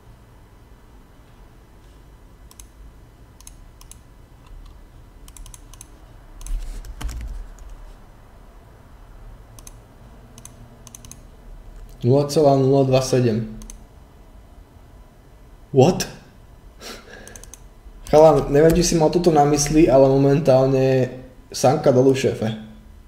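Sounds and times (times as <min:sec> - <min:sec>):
computer keyboard typing: 0:02.5 - 0:02.8, 0:03.4 - 0:07.8, 0:09.6 - 0:12.0, 0:13.6 - 0:13.8, 0:17.2 - 0:19.9.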